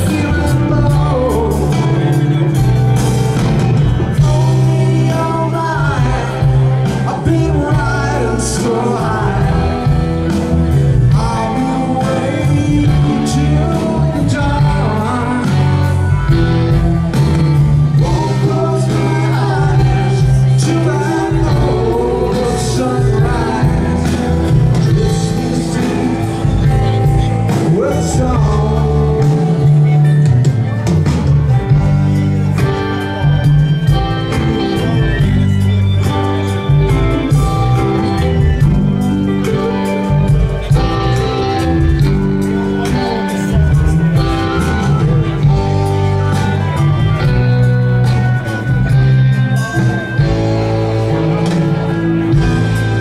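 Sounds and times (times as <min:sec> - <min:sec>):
lead vocal singing: 0:00.0 - 0:02.9, 0:04.0 - 0:30.6
live rock band playing: 0:00.0 - 0:53.0.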